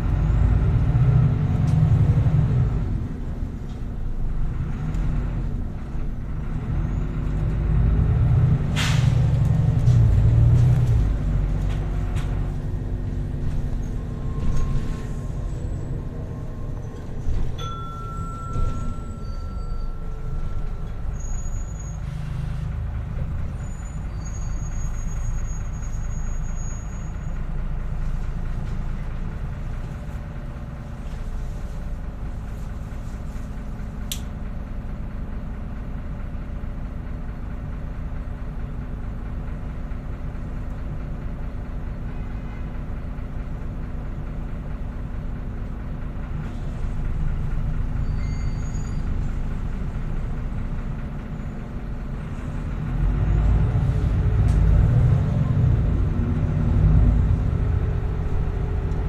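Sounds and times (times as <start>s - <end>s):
diesel bus engine: 0.0s - 59.0s
thin high squeaks: 16.9s - 22.6s.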